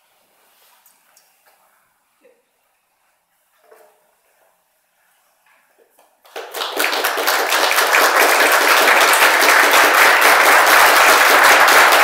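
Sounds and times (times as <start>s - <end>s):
applause: 6.2s - 12.0s.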